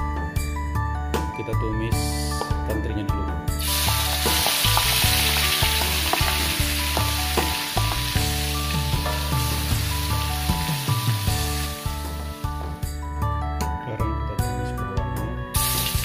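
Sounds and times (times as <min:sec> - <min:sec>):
fish sizzling in hot oil: 0:03.6 - 0:12.1, 0:15.6 - 0:16.0.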